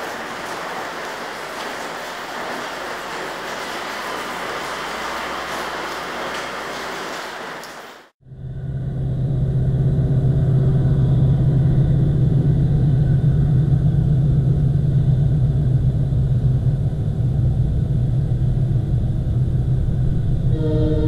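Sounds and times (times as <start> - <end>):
low engine rumble: 8.2 - 21.0.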